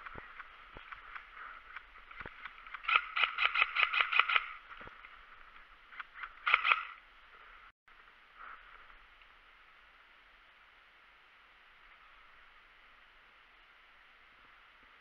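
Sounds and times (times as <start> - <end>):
airsoft rifle firing: 0.0 - 5.0, 6.0 - 7.0.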